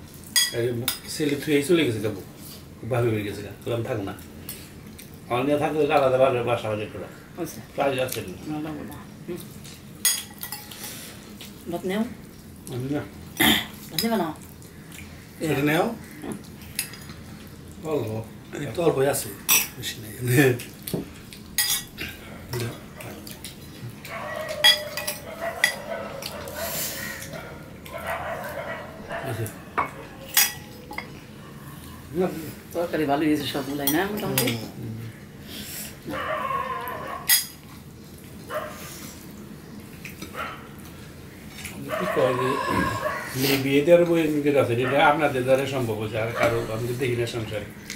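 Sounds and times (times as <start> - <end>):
dishes clinking on a table: 0.4 - 1.1, 10.0 - 10.8, 24.4 - 25.9, 29.7 - 31.2
dog calling: 24.0 - 30.8, 36.1 - 37.4, 41.8 - 43.4.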